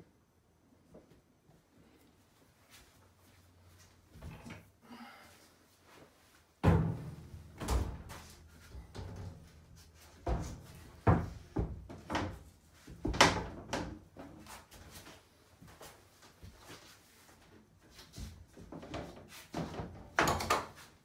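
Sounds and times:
panel knocks and bumps: 0:06.6 - 0:08.2, 0:10.2 - 0:14.0
wall panel thudding: 0:06.6 - 0:08.2.

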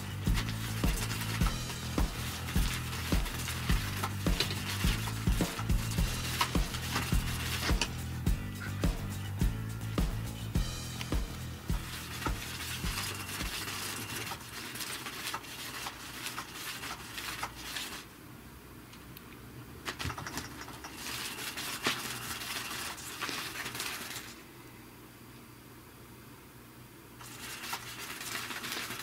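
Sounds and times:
wand scraping and ticking under fabric: 0:00.0 - 0:08.8, 0:11.4 - 0:18.1, 0:19.9 - 0:24.4
toy motor whirring: 0:00.0 - 0:09.3, 0:10.3 - 0:18.1, 0:20.0 - 0:24.4, 0:27.2 - 0:29.0.

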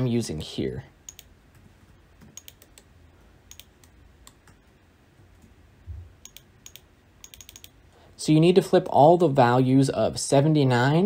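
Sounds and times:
keyboard typing: 0:01.0 - 0:02.9, 0:03.5 - 0:04.6, 0:06.2 - 0:07.8.

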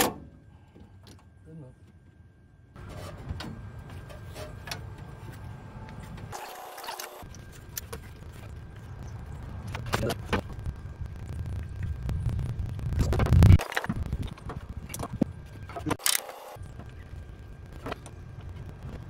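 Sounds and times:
low rumble: 0:07.3 - 0:16.0.

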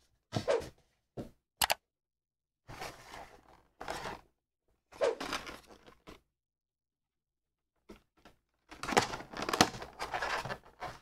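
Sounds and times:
plastic crinkling and scraping: 0:02.7 - 0:04.3, 0:05.0 - 0:06.2, 0:07.9 - 0:11.0.

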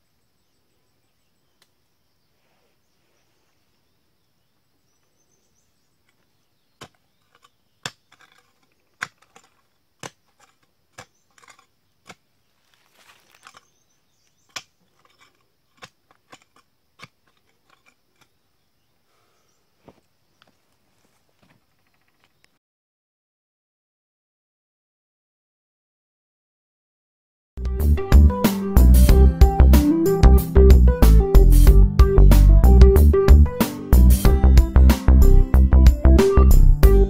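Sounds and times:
loose soil scraping rustle: 0:02.2 - 0:03.9, 0:04.9 - 0:22.5
digging tool striking earth: 0:06.1 - 0:18.4.

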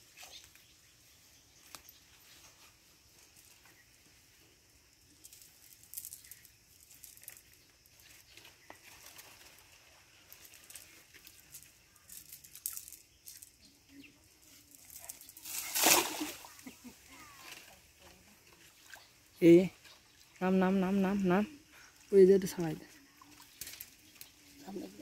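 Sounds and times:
net rustling and crackling: 0:14.4 - 0:17.8
net swishing through air: 0:15.4 - 0:16.6.

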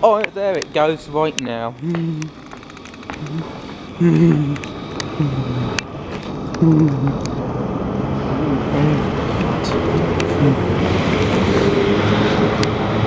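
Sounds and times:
faint electric hum: 0:00.0 - 0:09.8
train wheel and motor noise: 0:00.0 - 0:13.0.

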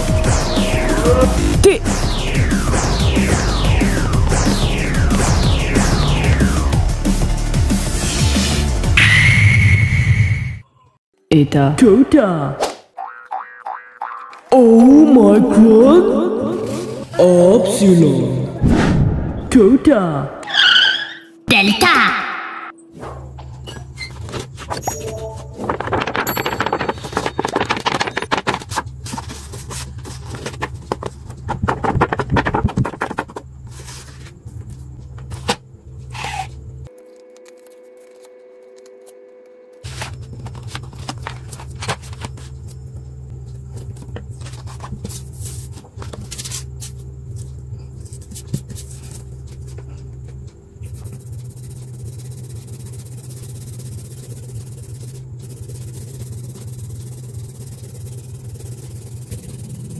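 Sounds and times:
paper rustling: 0:24.2 - 0:34.4, 0:39.8 - 0:42.6, 0:43.9 - 0:47.0
pencil scratching on paper: 0:50.9 - 0:59.9.

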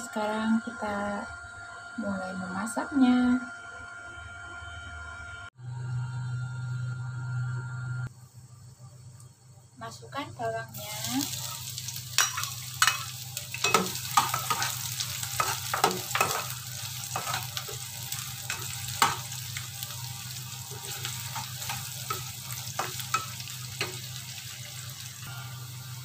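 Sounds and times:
sizzling in hot oil: 0:10.4 - 0:26.0.

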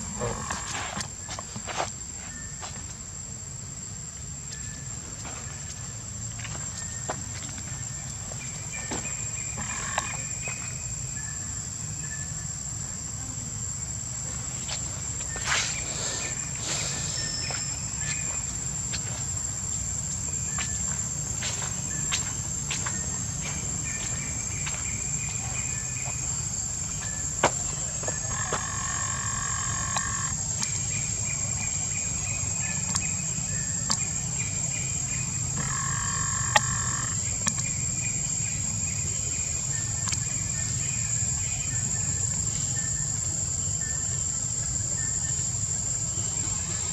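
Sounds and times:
high-pitched insect buzzing: 0:00.0 - 0:01.0, 0:09.3 - 0:10.7, 0:28.0 - 0:31.2, 0:35.1 - 0:37.7
lower-pitched steady call: 0:28.2 - 0:30.4.

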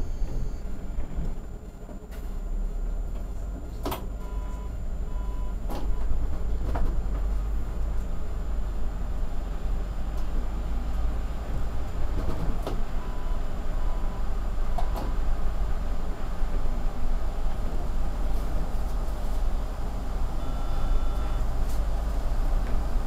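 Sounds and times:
short high beeps: 0:00.0 - 0:00.6, 0:04.2 - 0:05.6, 0:20.4 - 0:21.5
bus engine and road rumble: 0:00.0 - 0:23.0.

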